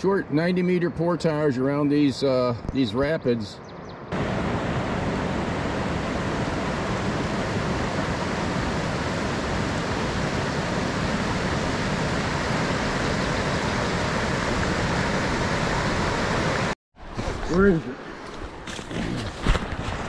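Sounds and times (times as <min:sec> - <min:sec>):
river rapids rushing: 0:04.2 - 0:16.8.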